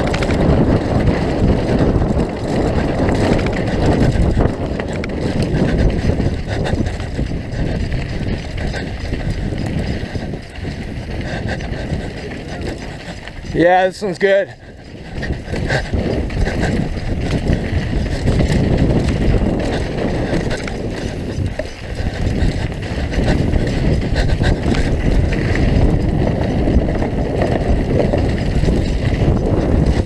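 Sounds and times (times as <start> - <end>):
bike rattling and knocking: 0.0 - 30.0
tyre roar on dirt: 0.0 - 30.0
wind buffeting microphone: 0.0 - 30.0.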